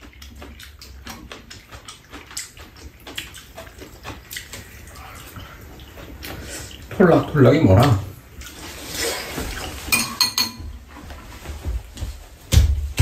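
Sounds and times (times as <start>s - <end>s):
wet slurping and chewing: 0.0s - 9.9s
spoons clicking against bowls: 10.0s - 10.6s.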